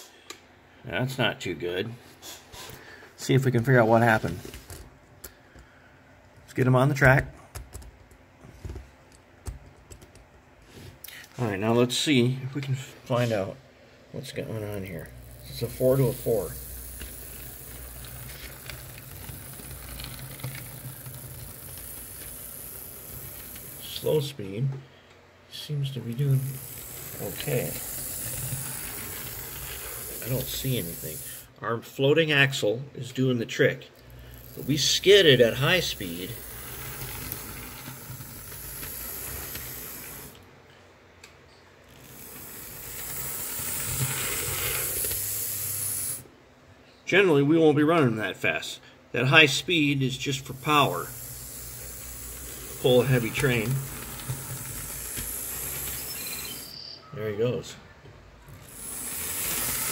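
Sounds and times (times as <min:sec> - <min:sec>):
model locomotive motor hum: 0:14.2 - 0:24.4, 0:25.8 - 0:31.5, 0:34.0 - 0:40.4, 0:41.8 - 0:46.3, 0:49.3 - 0:56.9, 0:58.5 - 0:59.9
wheels clicking over rails: 0:14.5 - 0:24.2, 0:26.1 - 0:31.4, 0:34.1 - 0:40.4, 0:41.8 - 0:46.2, 0:50.4 - 0:56.8, 0:58.5 - 0:59.9.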